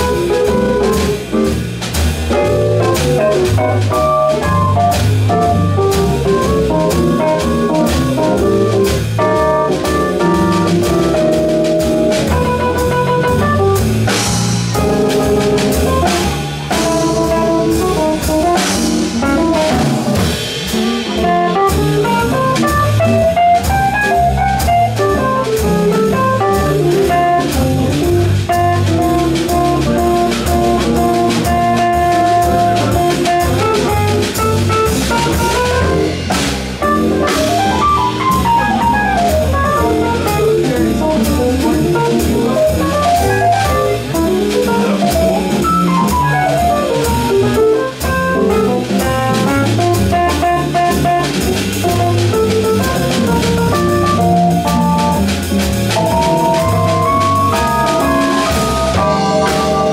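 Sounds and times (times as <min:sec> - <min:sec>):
double bass: 0:00.0 - 0:59.9
drum kit: 0:00.0 - 0:59.9
guitar: 0:00.0 - 0:59.9
piano: 0:00.0 - 0:59.9
melodic line: 0:56.0 - 0:59.9.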